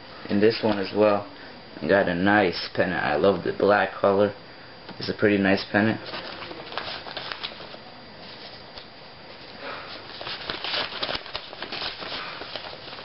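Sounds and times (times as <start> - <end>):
paper mail rustling: 0.5 - 1.0, 6.0 - 8.6, 9.3 - 13.0.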